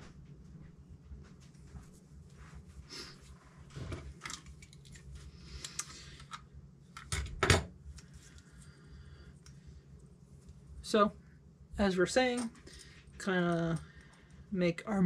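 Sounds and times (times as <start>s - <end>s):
steady low hum: 0.0s - 15.0s
parts clattering on workbench: 7.0s - 7.7s.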